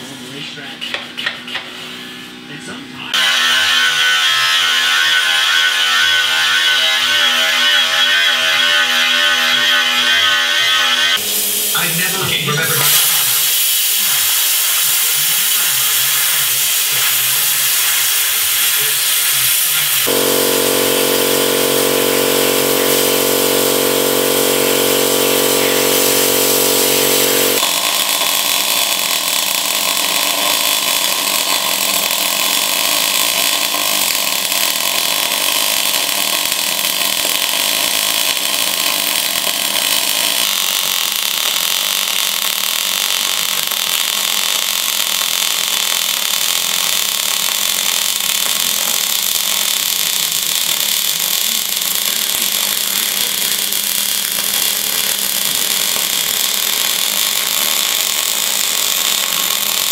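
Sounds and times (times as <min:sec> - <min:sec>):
welder running: 0:03.1 - 0:59.9
plasma cutter hissing: 0:09.5 - 0:29.4, 0:30.4 - 0:59.9
steady machine hum: 0:19.8 - 0:30.2.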